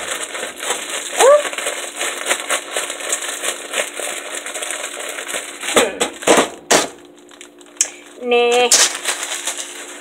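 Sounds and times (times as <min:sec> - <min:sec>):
plastic bag crinkling: 0:00.0 - 0:10.0
loud rustling knocks: 0:05.6 - 0:07.0.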